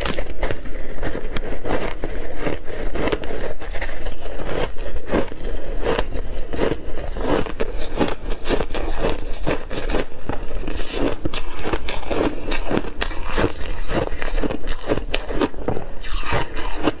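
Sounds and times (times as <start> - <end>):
ice being bitten and chewed: 0.0 - 17.0.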